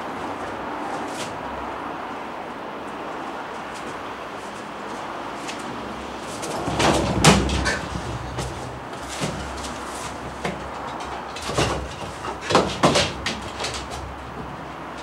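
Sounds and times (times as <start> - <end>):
thumps on wooden deck: 6.6 - 14.6.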